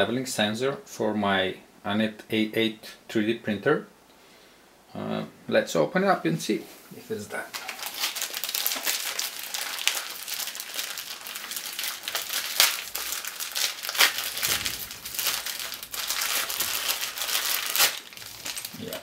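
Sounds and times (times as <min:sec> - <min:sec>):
plastic pouch crinkling and tearing: 0:07.5 - 0:19.0.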